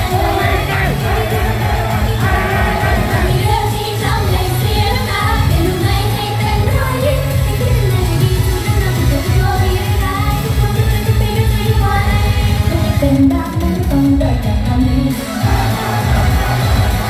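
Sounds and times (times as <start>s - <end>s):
female group singing: 0.0s - 6.5s
pop backing track with beat: 0.0s - 17.0s.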